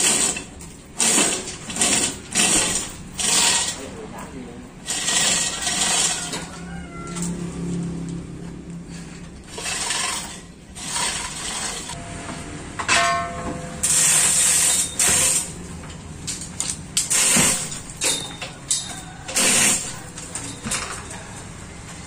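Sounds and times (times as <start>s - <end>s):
chain hoist rattling and clicking: 0.0s - 7.4s, 8.9s - 12.0s, 13.8s - 21.3s
metal clanks: 8.9s - 21.3s.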